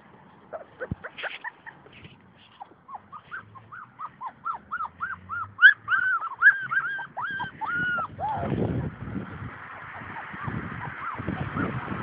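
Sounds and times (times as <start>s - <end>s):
puppy whining: 0.5s - 1.8s, 2.5s - 8.9s, 10.0s - 11.7s.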